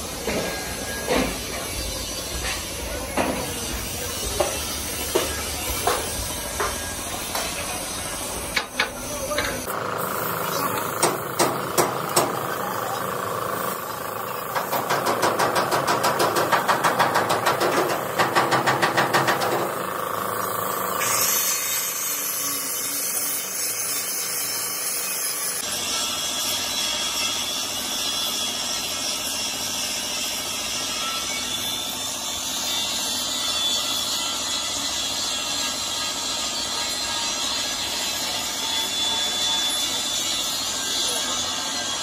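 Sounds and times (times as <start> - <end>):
rhythmic mechanical knocking: 0.3 - 21.2
spray gun air hissing: 9.9 - 15.0, 17.3 - 25.5.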